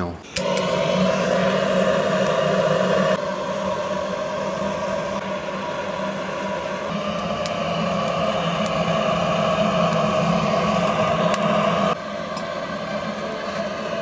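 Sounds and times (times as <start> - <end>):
butane torch flame hissing: 0.2 - 14.0.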